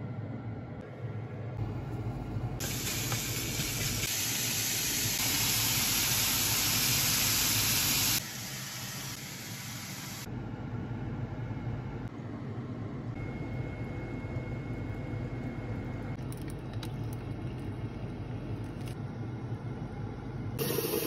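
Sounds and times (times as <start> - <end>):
low steady hum: 0.0 - 4.0, 10.2 - 21.0.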